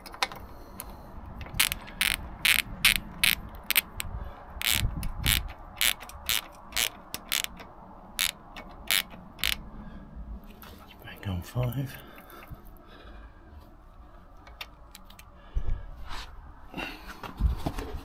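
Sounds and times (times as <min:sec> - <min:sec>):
ratchet clicking: 0:00.0 - 0:09.6.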